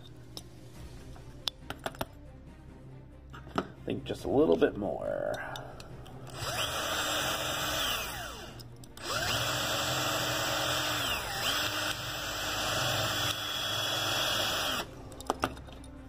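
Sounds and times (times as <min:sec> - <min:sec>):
electric drill boring metal: 0:06.3 - 0:15.0.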